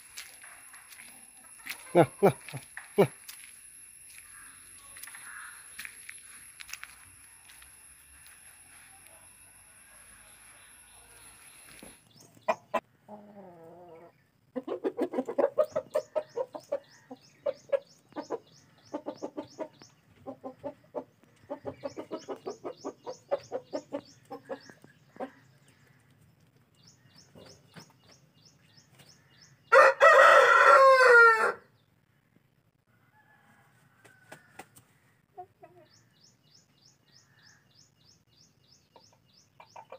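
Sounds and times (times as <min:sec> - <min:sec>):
rooster clucking: 0:01.5 - 0:03.1, 0:11.0 - 0:25.4
rooster crowing: 0:08.2 - 0:11.5, 0:29.7 - 0:31.7, 0:32.9 - 0:34.6.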